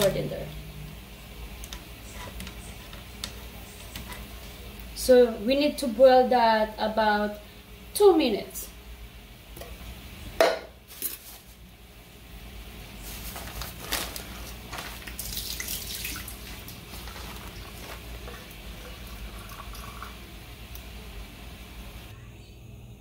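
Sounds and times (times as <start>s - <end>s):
water bubbling at the boil: 15.1s - 20.9s.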